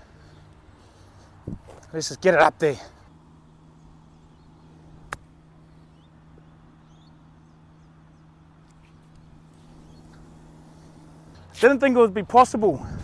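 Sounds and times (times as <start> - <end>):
steady low hum: 0.0 - 13.0
faint bird chirps: 3.5 - 11.5
golf club striking ball: 5.0 - 5.4.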